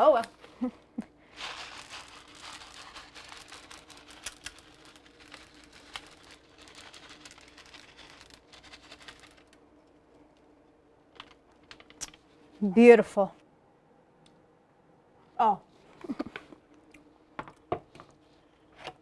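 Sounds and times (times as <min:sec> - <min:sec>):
foil bag crinkling: 0:01.3 - 0:10.0
sprinkles pattering on batter: 0:01.4 - 0:09.6.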